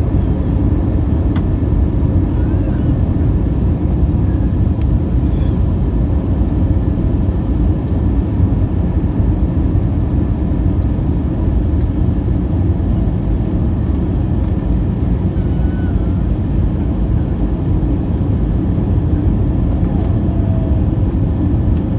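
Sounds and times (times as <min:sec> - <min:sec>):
airplane engine rumble in cabin: 0:00.0 - 0:21.9.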